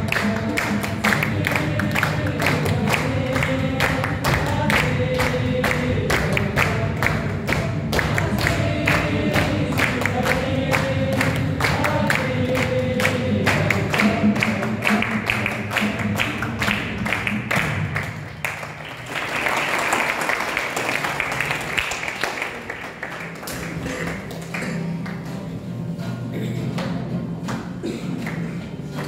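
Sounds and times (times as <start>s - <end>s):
group singing with sharp beats: 0.0s - 18.3s
applause: 0.0s - 25.4s, 27.5s - 29.0s.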